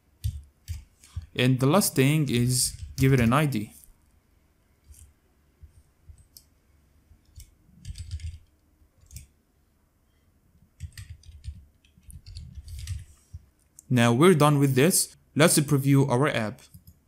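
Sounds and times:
keyboard typing: 0.2s - 1.4s, 2.2s - 3.5s, 7.2s - 9.3s, 10.8s - 13.1s.

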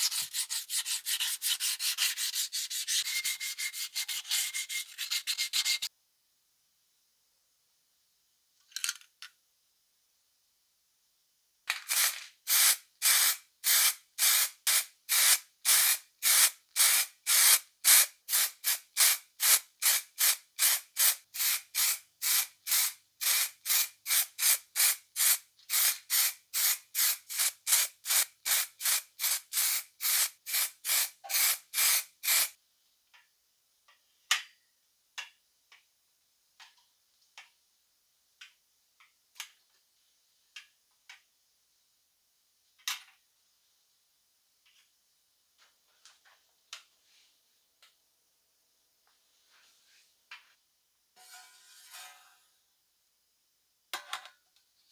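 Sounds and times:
aerosol spray bursts: 11.9s - 32.6s.

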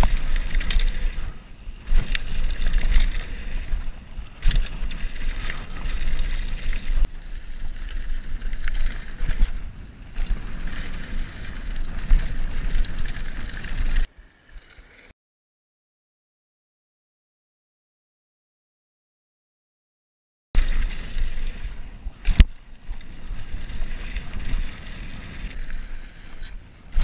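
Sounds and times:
bike knocks and rattles: 0.0s - 14.0s.

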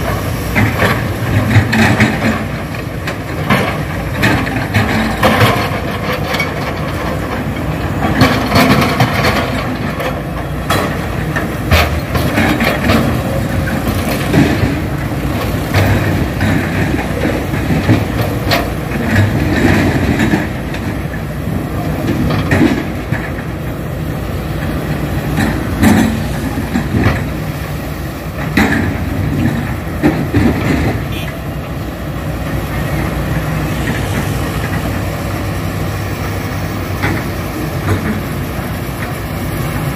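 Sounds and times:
steel bucket clanking on boulders: 0.0s - 24.0s, 24.6s - 27.6s
diesel engine under load: 0.0s - 39.9s.

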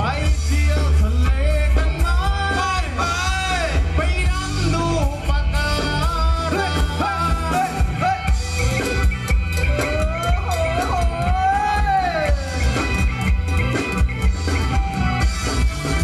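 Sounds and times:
person singing: 0.0s - 13.8s
live band playing dance music: 0.0s - 16.0s.

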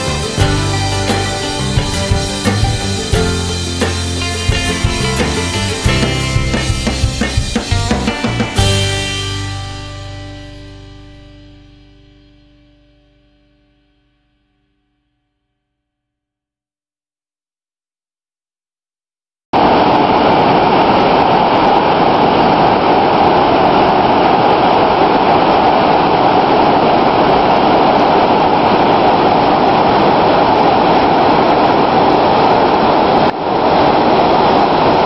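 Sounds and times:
waterfall rushing: 0.0s - 10.2s, 19.6s - 35.0s.

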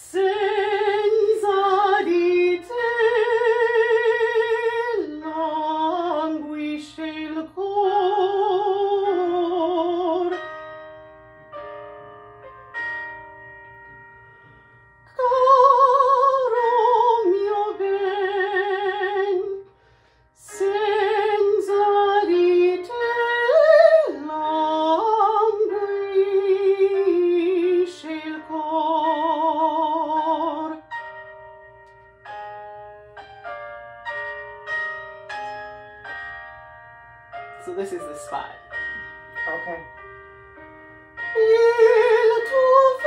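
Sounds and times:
woman singing with vibrato: 0.0s - 10.2s, 15.2s - 19.6s, 20.4s - 30.8s, 41.3s - 43.0s
piano accompaniment: 0.0s - 43.0s.

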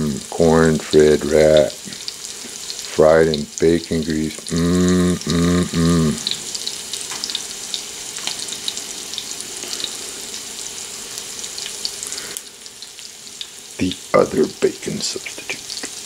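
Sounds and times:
meat frying in grease: 0.0s - 16.0s.

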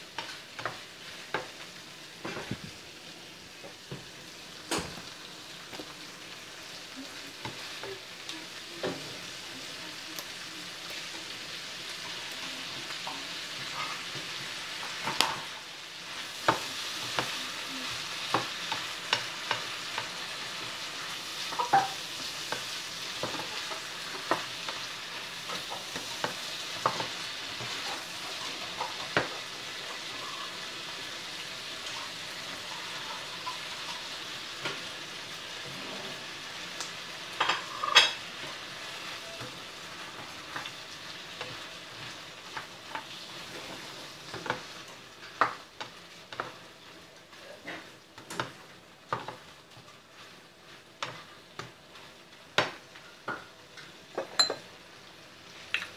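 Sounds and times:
food sizzling in a frying pan: 0.0s - 55.9s
spatula scraping a pan: 31.8s - 34.8s.

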